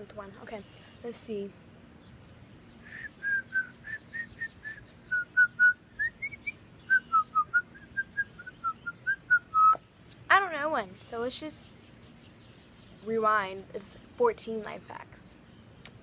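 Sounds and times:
girl whistling a tune: 0:02.9 - 0:09.8.

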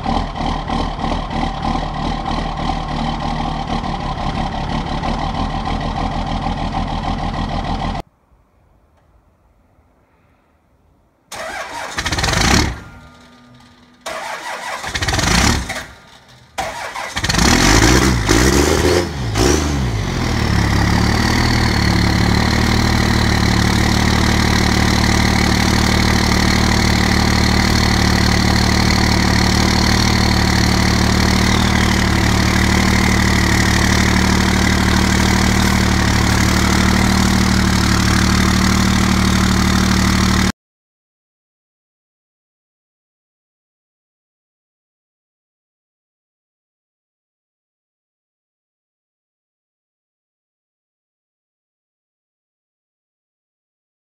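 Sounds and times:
diesel engine cranking and idling: 0:00.0 - 0:08.0, 0:11.3 - 0:40.5.

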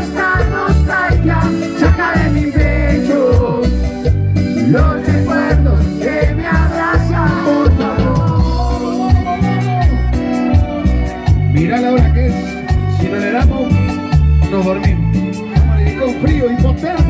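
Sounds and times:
man singing: 0:00.0 - 0:10.4
live band playing pop ballad: 0:00.0 - 0:17.0.

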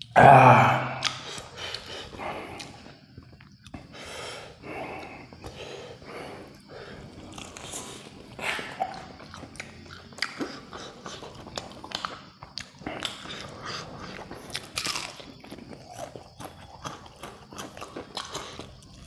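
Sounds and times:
person chewing food: 0:00.0 - 0:19.0
sharp bite clicks: 0:00.8 - 0:01.8
breathing: 0:03.8 - 0:07.1.

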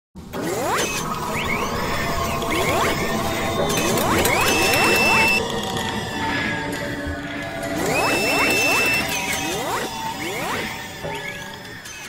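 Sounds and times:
music: 0:00.2 - 0:12.0
rising mechanical whirs: 0:00.2 - 0:12.0.

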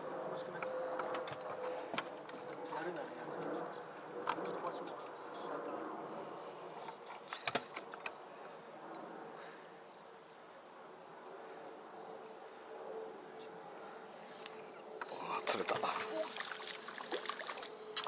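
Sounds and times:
insect hum and buzz: 0:11.2 - 0:18.0.

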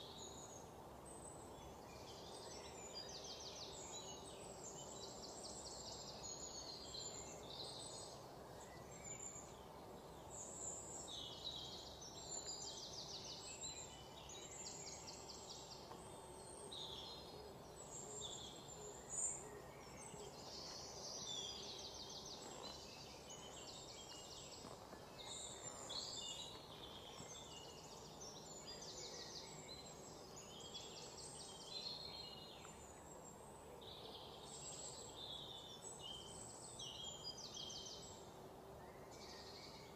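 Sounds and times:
faint steady hiss: 0:00.0 - 0:39.9.

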